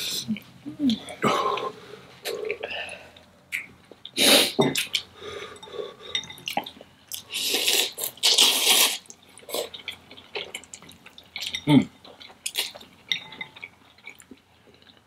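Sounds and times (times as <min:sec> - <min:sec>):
noodles being slurped: 0:07.2 - 0:09.8
utensil clinking against bowl: 0:13.1 - 0:13.7.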